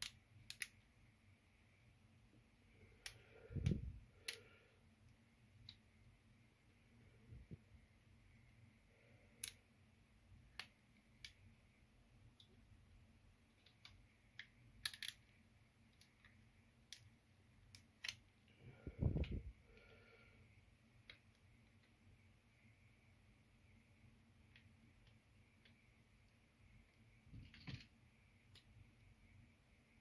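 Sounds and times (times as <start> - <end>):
plastic clicks and snaps: 0.0 - 0.8.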